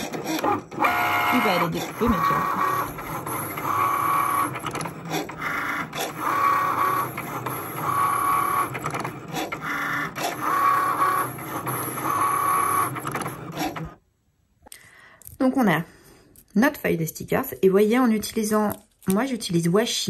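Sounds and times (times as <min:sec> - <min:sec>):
cutting machine motors whining: 0:00.0 - 0:14.0.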